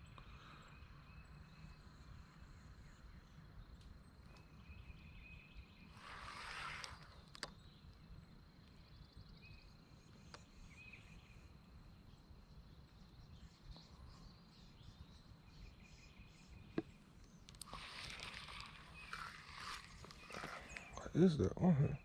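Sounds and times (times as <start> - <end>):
bird chirps: 0.0 - 22.0
rustle: 4.4 - 9.7, 12.9 - 21.0
high insect trill: 5.9 - 7.8, 17.5 - 21.9.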